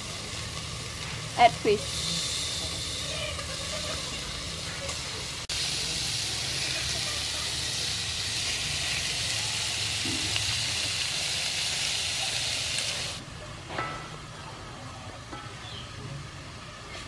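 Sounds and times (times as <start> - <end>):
fish sizzling in hot oil: 0.0 - 13.2
outdoor background: 0.0 - 17.0.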